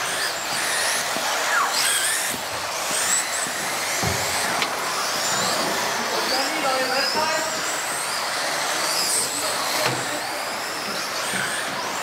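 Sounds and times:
small motors whining: 0.0 - 12.0.

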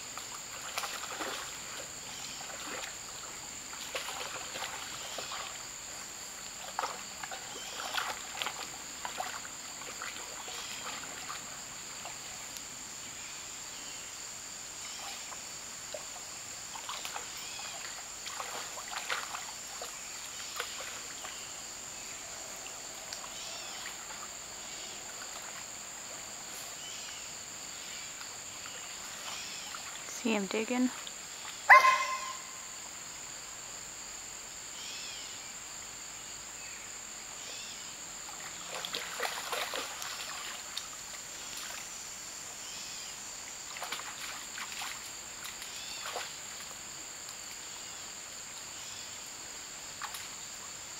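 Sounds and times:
insects droning: 0.0 - 50.9
dog splashing in water: 0.5 - 5.7, 6.5 - 12.3, 16.7 - 21.5, 38.3 - 41.9, 43.7 - 46.8.

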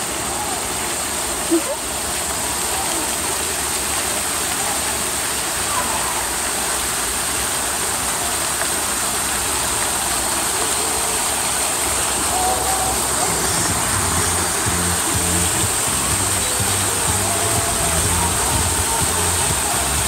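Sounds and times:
faint voices: 0.0 - 20.0
steady rushing noise: 10.4 - 20.0.

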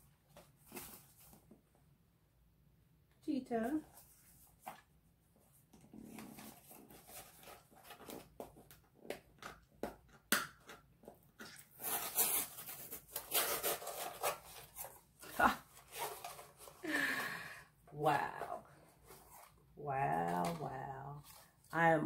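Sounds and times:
gift box packaging rustling: 0.3 - 1.6, 6.0 - 9.6, 11.6 - 21.7
packaging crackling and scraping: 11.6 - 16.8.

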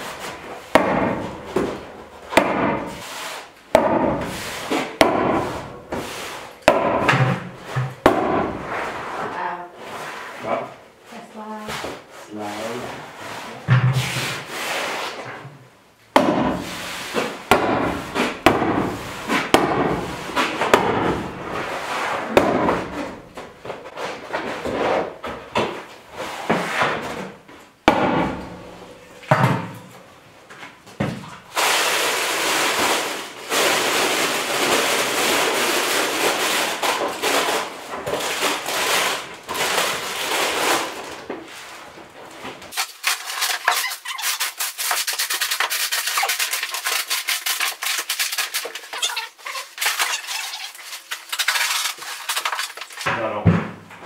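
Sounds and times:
tar paper crinkling and scraping: 31.6 - 41.9, 42.7 - 53.2.

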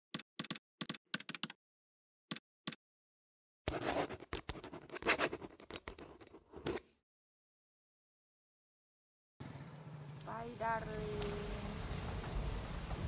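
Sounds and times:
typing clicks: 0.2 - 1.6
pen scratching on paper: 3.7 - 6.9.

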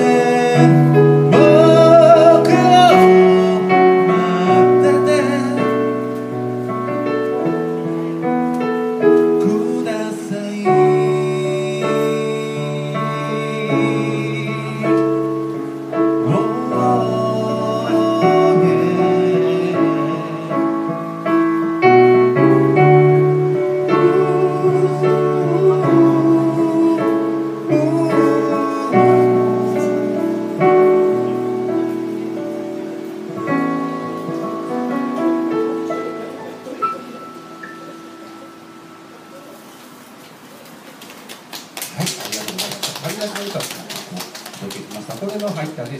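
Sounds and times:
person singing: 0.0 - 6.2, 9.2 - 21.6, 23.0 - 33.6
electric keyboard chords: 0.0 - 41.8.

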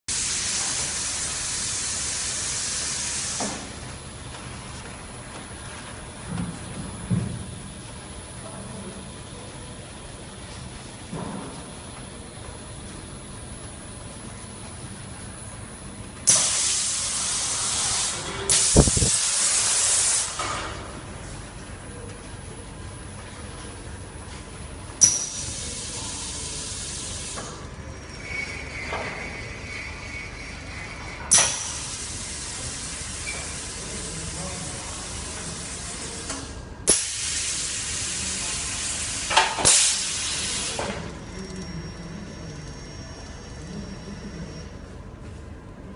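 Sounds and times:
compressed air hissing: 0.1 - 3.8, 16.2 - 20.6, 31.3 - 36.2, 36.9 - 41.0
low machine hum: 0.2 - 19.6, 20.3 - 45.9.

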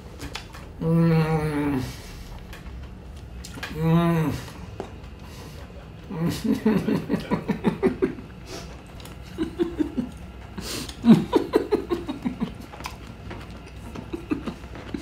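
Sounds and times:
man chuckling with closed mouth: 5.6 - 13.0, 13.8 - 15.0.

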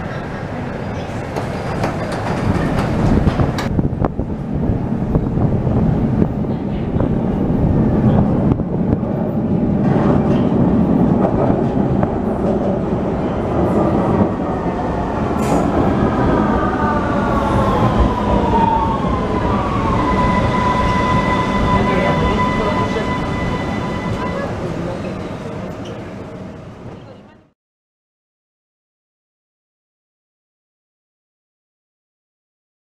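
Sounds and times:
metro train wheels rumbling: 0.0 - 27.5
train brake whine: 19.8 - 25.2.

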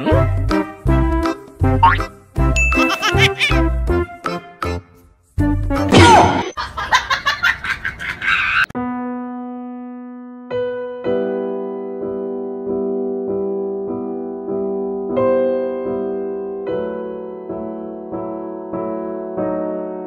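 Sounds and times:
slow piano music: 8.8 - 20.0.

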